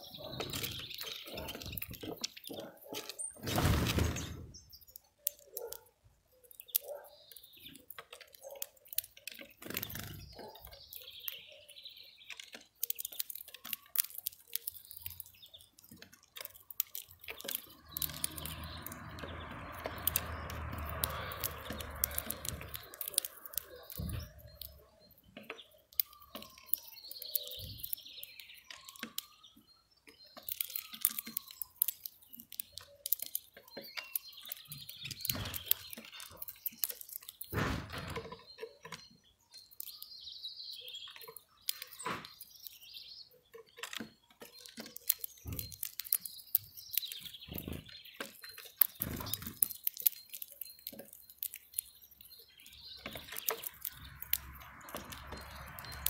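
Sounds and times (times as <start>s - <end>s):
beaks pecking at seed: 0.0s - 56.0s
faint bird chirps: 0.0s - 56.0s.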